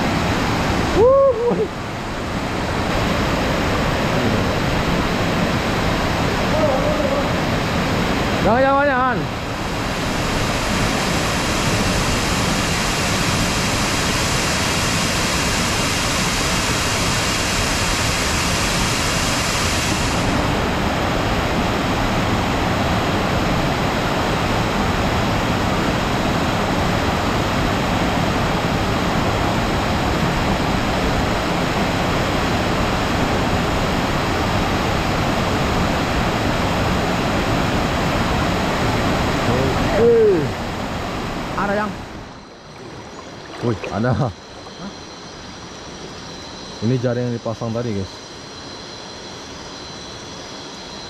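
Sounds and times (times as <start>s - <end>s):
waterfall rushing onto rocks: 3.0s - 21.2s.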